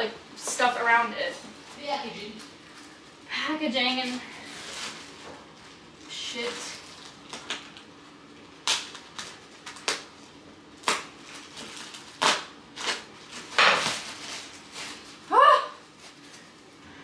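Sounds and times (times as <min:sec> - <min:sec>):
packing material pulled apart: 0:08.5 - 0:16.7.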